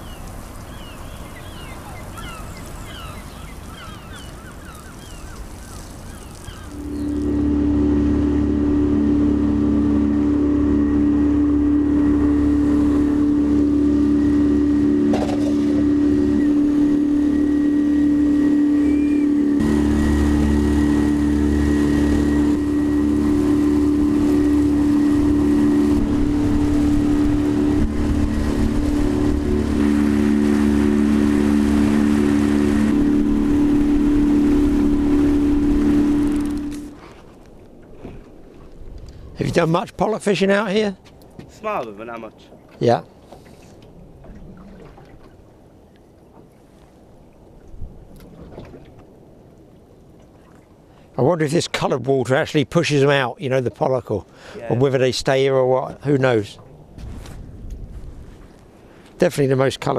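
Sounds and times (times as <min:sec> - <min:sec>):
outboard motor running: 0:03.7 - 0:39.0.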